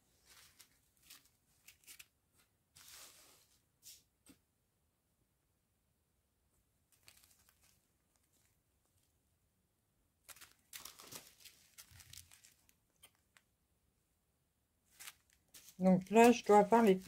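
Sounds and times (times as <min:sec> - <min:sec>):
plastic bag crinkling: 0:00.2 - 0:02.1, 0:06.9 - 0:08.6, 0:10.2 - 0:13.3, 0:14.9 - 0:17.0.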